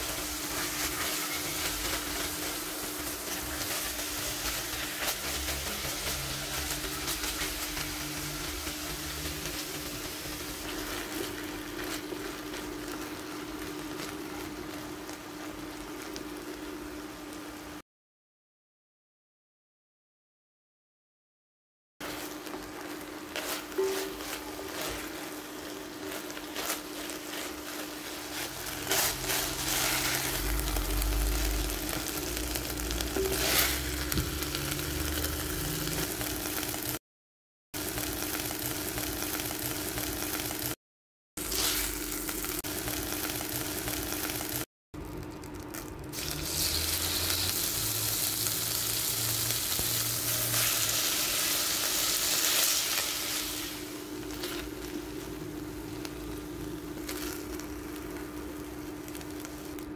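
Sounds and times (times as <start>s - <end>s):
wooden spoon stirring and scraping: 0.0s - 13.1s
chicken sizzling in a pot: 0.0s - 17.8s, 22.0s - 37.0s, 37.8s - 40.8s, 41.4s - 59.9s.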